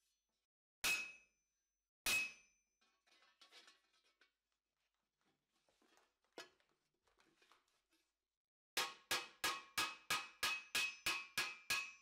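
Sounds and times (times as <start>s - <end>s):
hammer ringing on steel: 0.8s - 1.3s, 8.8s - 12.0s.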